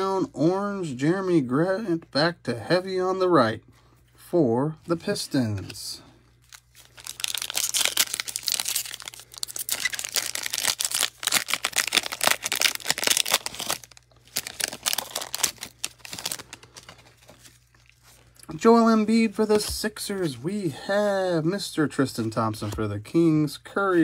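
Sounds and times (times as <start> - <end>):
foil wrapper crinkling and tearing: 6.4 - 18.4.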